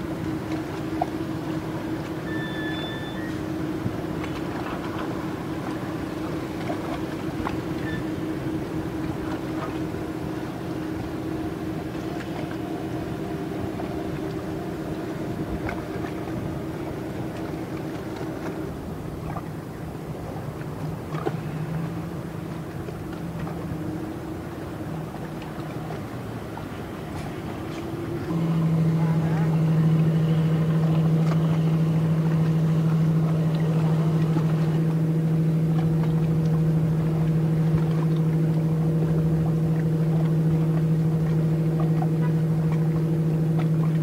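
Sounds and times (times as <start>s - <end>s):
motorboat engine droning: 0.0s - 44.0s.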